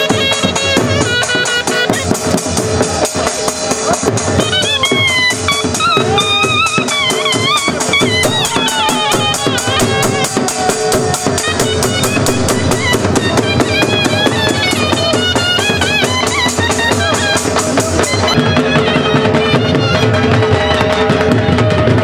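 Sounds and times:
fast drum beat: 0.0s - 22.0s
high wavering melody: 4.8s - 19.4s.

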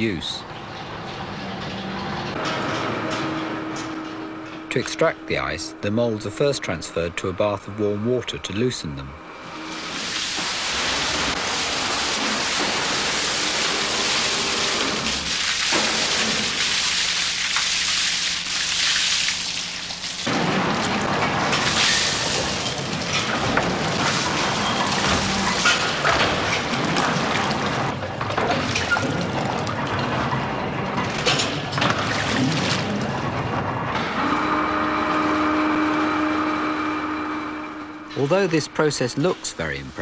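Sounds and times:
water splashing and rushing: 9.7s - 30.1s.

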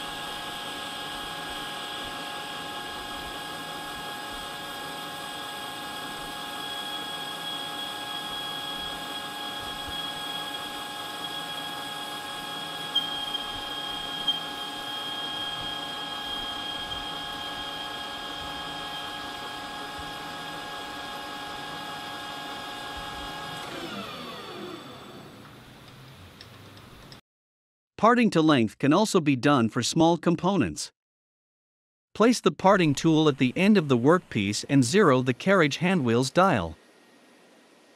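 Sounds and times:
metal lathe whining: 0.0s - 25.6s
lathe spindle winding down: 0.0s - 26.0s.

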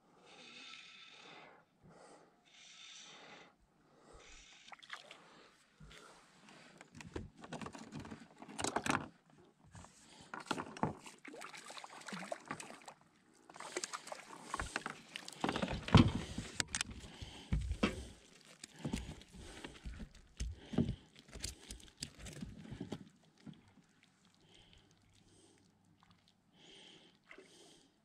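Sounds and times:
fish splashing in water: 11.2s - 13.0s.

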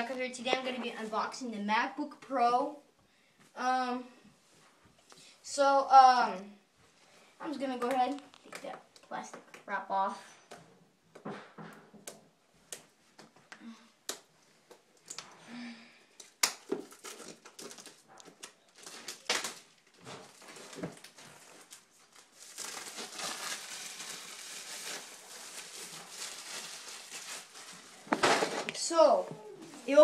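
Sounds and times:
plastic shrink wrap crackling: 16.2s - 28.9s
plastic wrap crinkling: 16.2s - 29.0s.

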